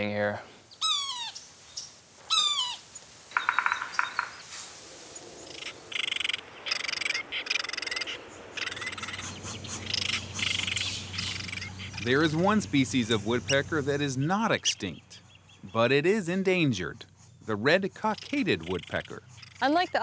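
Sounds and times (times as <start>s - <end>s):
slurred bird calls: 0.7s - 4.5s, 5.1s - 20.0s
rapid bird trill: 3.4s - 4.4s, 5.5s - 20.0s
high buzzing insect chorus: 5.1s - 20.0s.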